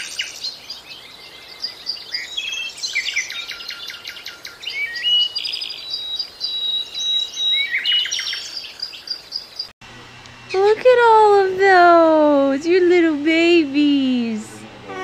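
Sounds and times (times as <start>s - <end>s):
birds chirping and trilling: 0.0s - 9.7s.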